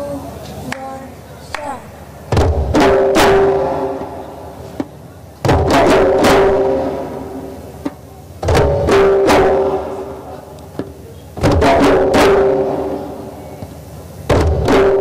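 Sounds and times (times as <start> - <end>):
djembe drums: 2.2 - 7.3, 11.4 - 13.0.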